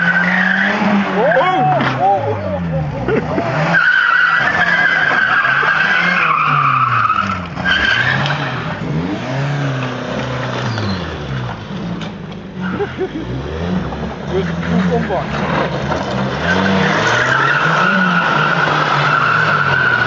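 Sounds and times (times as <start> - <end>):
tyres squealing on tarmac: 0.0 - 2.7, 3.4 - 8.6, 14.4 - 20.0
car engine revving: 0.0 - 20.0.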